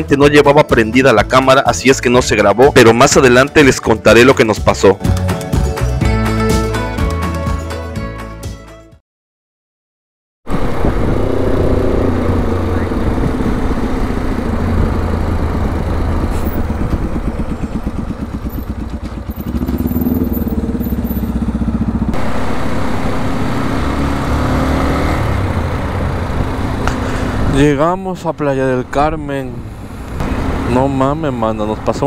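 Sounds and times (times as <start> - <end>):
wind rushing over microphone: 10.5 - 18.2
motorcycle engine riding: 10.5 - 32.0.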